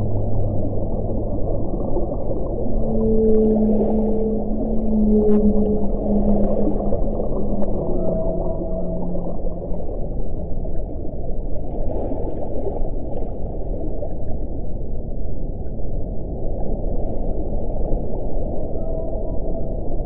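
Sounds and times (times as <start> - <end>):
low whale call: 0.0 - 11.2, 18.4 - 20.0
low underwater rush: 0.0 - 20.0.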